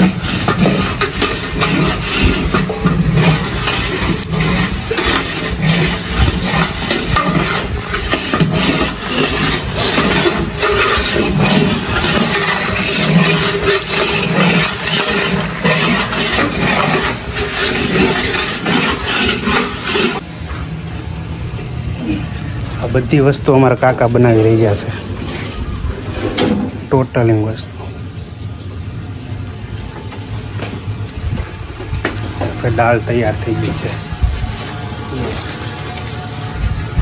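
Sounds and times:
liquid sloshing in a pot: 0.0s - 20.2s
paddle scraping and knocking a pot: 0.0s - 20.2s, 23.4s - 27.1s.

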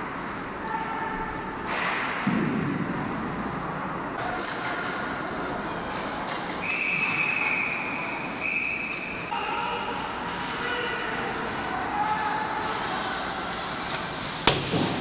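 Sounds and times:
arena noise and ice hockey play: 0.0s - 15.0s
referee's whistle blast: 6.6s - 9.1s.

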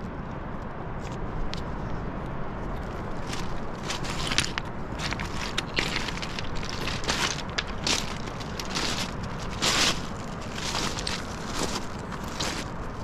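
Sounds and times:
footsteps crunching on pebbles: 3.1s - 13.0s.

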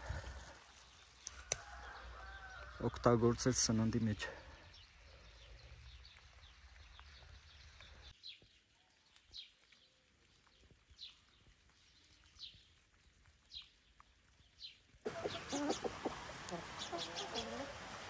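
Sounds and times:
hens clucking: 15.1s - 18.0s.

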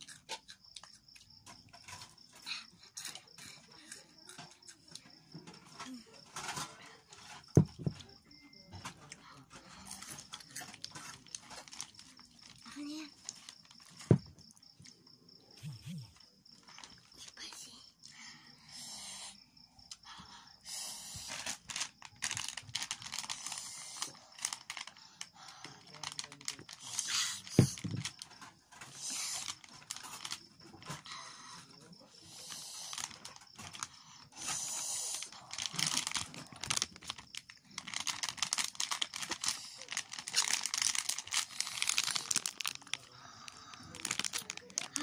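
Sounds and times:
plastic bag crinkling: 9.8s - 14.4s, 16.6s - 17.1s, 21.4s - 25.0s, 25.8s - 30.9s, 32.9s - 33.9s, 35.2s - 45.0s.

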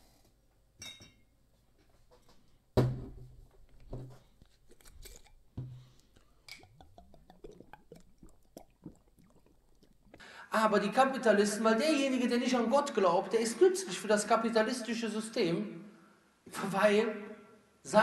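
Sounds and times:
glass clinking: 0.8s - 1.3s, 6.4s - 9.6s.

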